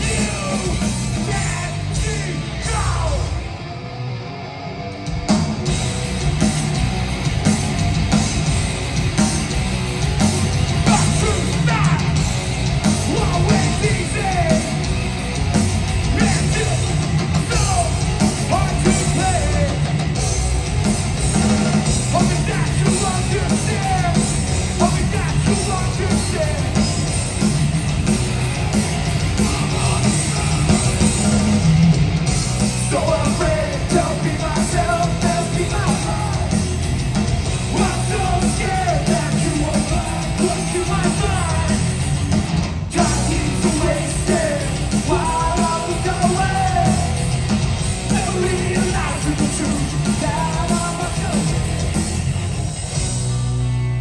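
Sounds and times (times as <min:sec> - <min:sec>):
shouted vocals: 0:00.0 - 0:03.5, 0:10.8 - 0:12.2, 0:16.1 - 0:19.8
live punk band playing loudly: 0:00.0 - 0:54.0.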